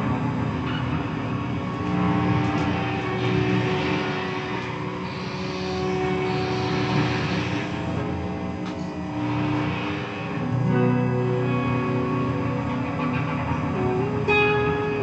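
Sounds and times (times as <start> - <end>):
electric guitar drone: 0.0 - 15.0.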